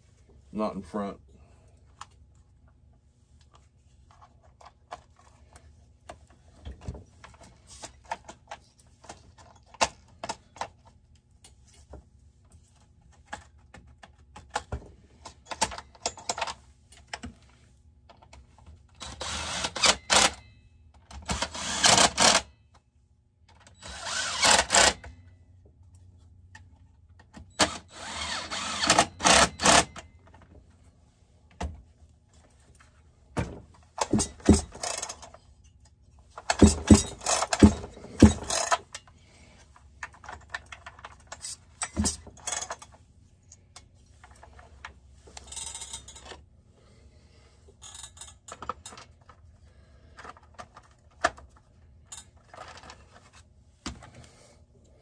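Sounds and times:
cordless drill driving screws: 19.0 - 20.3, 21.3 - 22.5, 23.8 - 25.0, 27.6 - 29.9
metal parts and tools clattering: 33.9 - 39.1, 40.0 - 43.1, 44.2 - 46.4, 47.8 - 49.5, 52.0 - 53.4.

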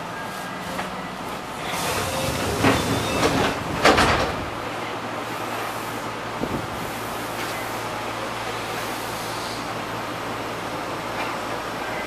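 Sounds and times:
electric train humming: 0.0 - 12.0
sliding doors closing thuds: 1.6 - 4.6.

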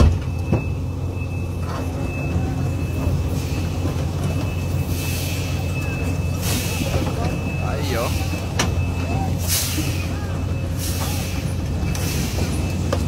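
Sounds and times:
excavator diesel engine rumbling: 0.0 - 13.0
hiss: 9.4 - 10.1, 10.8 - 12.8.

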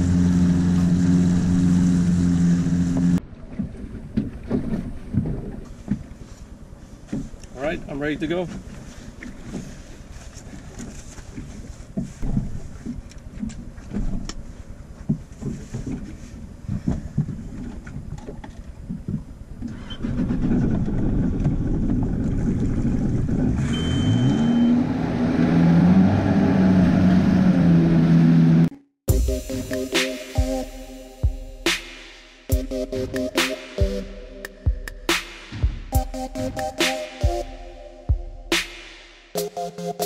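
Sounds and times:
small boat engine: 0.0 - 31.0.

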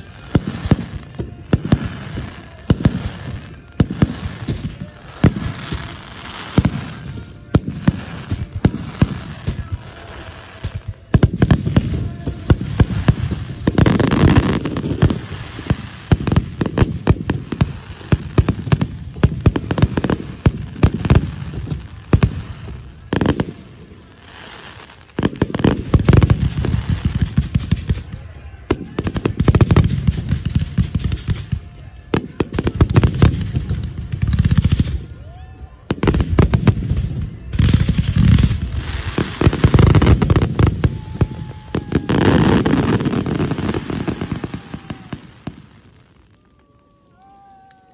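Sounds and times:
fireworks booming and crackling: 0.0 - 46.6.

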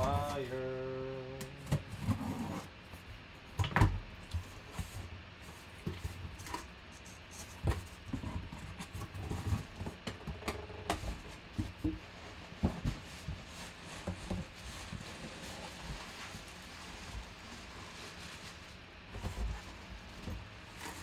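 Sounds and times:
knocks and rustling of box: 7.5 - 17.4.

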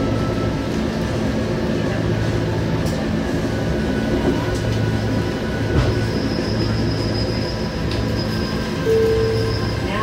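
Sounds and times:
high whine of train wheels: 0.0 - 10.0
train rumble and hum: 0.0 - 10.0.

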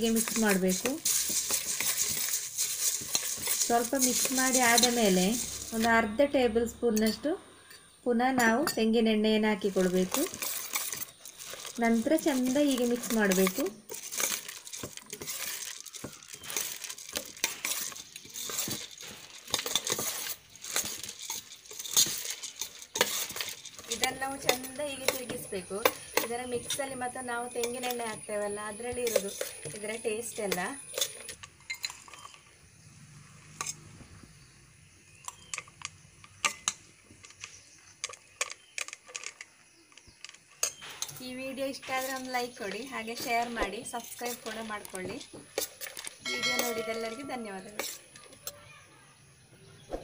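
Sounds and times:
dry grains rustling: 0.0 - 6.2, 9.6 - 32.5, 37.2 - 48.5
spoon clinking on steel bowl: 45.6 - 48.4.

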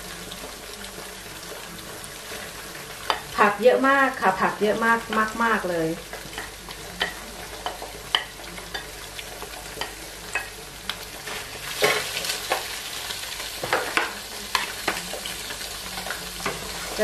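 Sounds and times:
vegetables sizzling in frying pan: 0.0 - 17.0
utensils scraping and tapping pan: 6.1 - 12.8.

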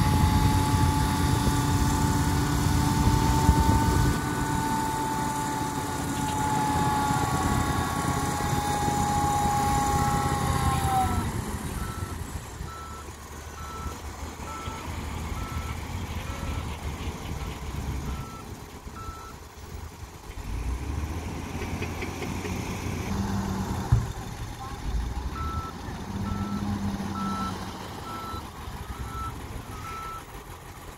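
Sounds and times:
diesel engine whining: 0.0 - 30.9
reversing alarm beeping: 11.8 - 16.8, 17.4 - 19.4, 25.3 - 30.3.

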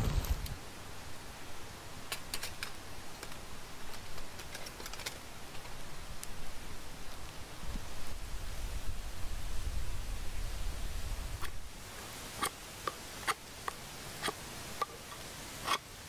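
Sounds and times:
campfire crackling and popping: 0.0 - 0.6, 2.1 - 8.2
faint steady hiss: 0.0 - 16.0.

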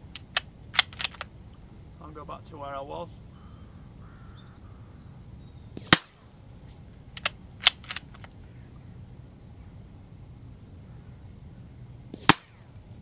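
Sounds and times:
rifle bolt clicks: 0.1 - 1.3, 7.2 - 8.4
rifle shot crack: 5.8 - 6.4, 12.1 - 12.7.

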